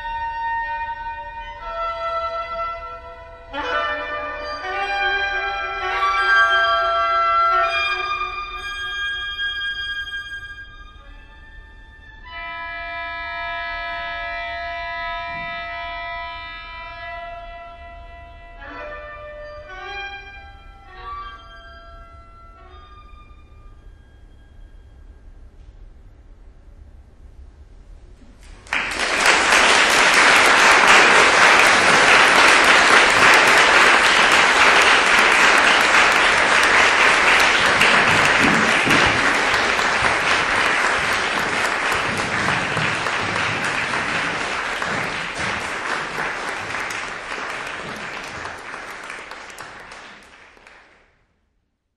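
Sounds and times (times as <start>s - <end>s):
audience applauding: 28.4s - 51.0s.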